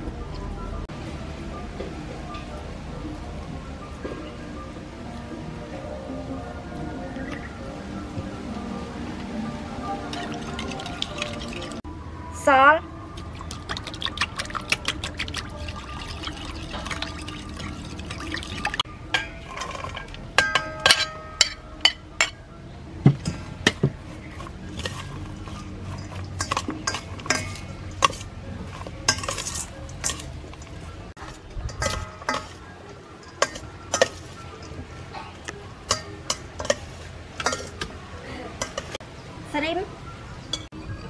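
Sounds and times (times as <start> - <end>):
metal spoon clinking in bowl: 18.1 - 22.4, 24.7 - 34.9, 35.9 - 37.9, 38.6 - 39.0
utensils knocking against bowls: 23.1 - 34.9, 35.9 - 37.9, 38.6 - 39.0.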